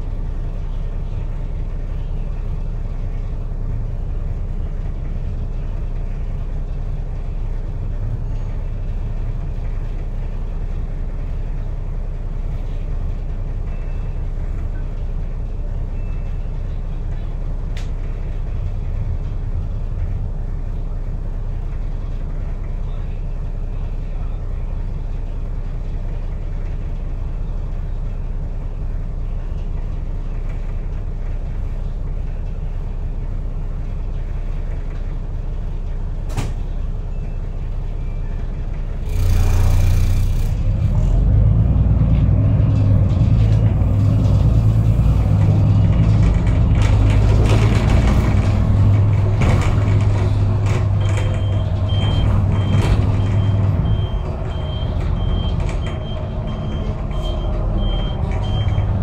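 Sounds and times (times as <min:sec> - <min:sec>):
bus engine rumbling: 0:00.0 - 0:59.0.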